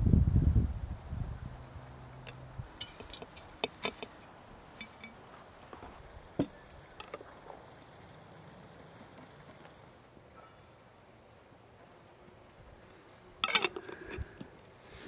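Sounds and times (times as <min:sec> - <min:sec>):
glass jars and metal lids clinking: 0:02.7 - 0:05.2, 0:06.4 - 0:07.3, 0:13.4 - 0:14.3.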